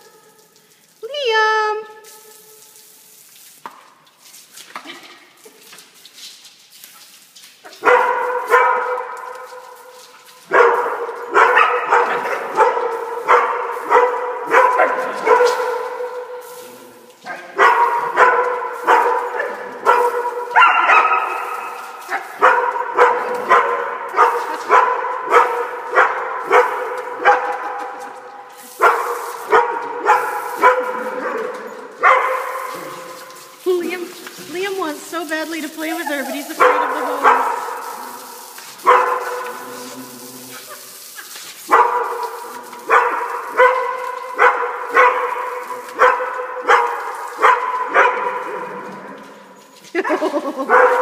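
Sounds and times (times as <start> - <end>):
dog barking: 7.7 - 28.2, 28.8 - 33.2, 36.0 - 38.2, 38.8 - 40.8, 41.7 - 48.8, 50.6 - 51.0.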